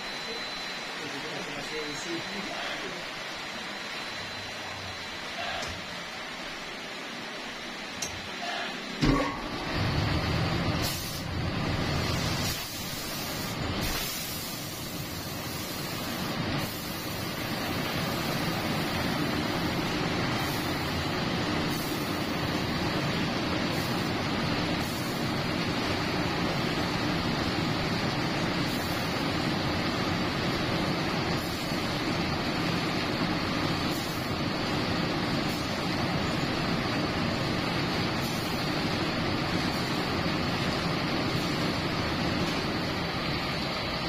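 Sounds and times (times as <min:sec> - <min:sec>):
steady hiss: 0:10.8 - 0:44.0.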